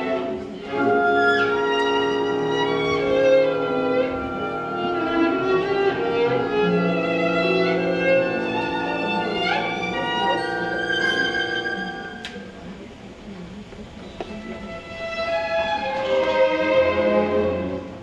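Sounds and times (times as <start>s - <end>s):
solo violin: 0.0s - 12.5s, 14.0s - 18.0s
orchestra playing quietly: 0.0s - 18.0s.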